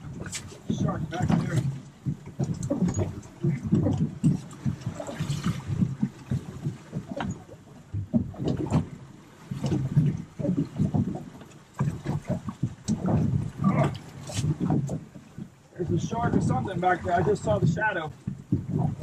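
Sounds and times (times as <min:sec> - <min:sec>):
fish splashing in water: 0:00.0 - 0:15.5
wind rumble on microphone: 0:00.0 - 0:19.0.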